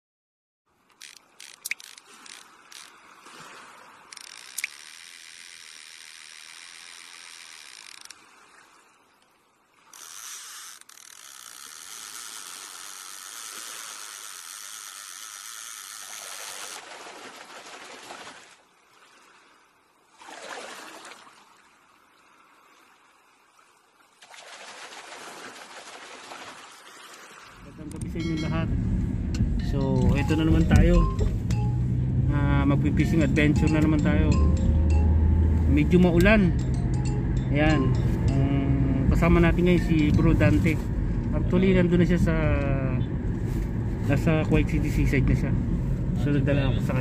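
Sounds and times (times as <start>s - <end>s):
fishing reel clicks: 0.9s - 2.9s, 4.1s - 8.2s, 9.9s - 16.8s
reel ratchet buzzing: 0.9s - 2.9s, 4.1s - 8.2s, 9.9s - 16.8s.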